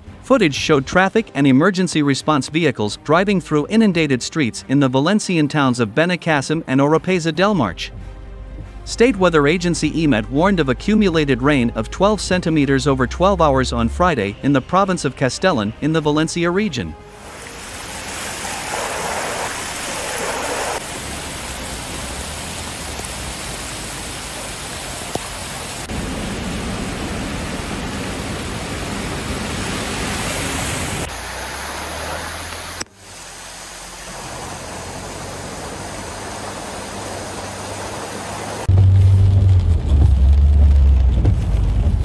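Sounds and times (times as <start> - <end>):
rushing floodwater: 17.1 - 38.7
heavy rain: 17.1 - 42.0
cars driving through deep water: 17.2 - 42.0.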